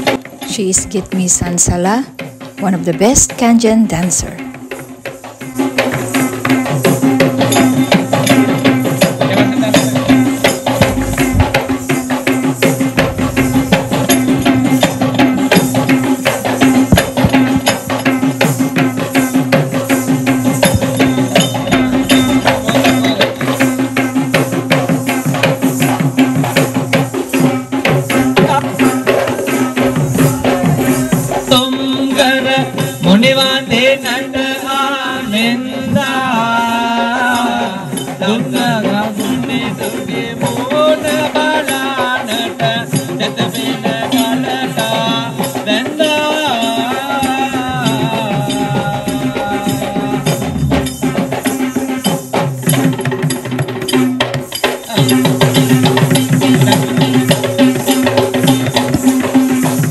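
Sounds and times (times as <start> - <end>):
rapid hand-drumming: 0.0 - 59.9
metallic jingling: 4.7 - 59.9
steady held tone: 10.6 - 15.8
person singing: 28.4 - 51.9.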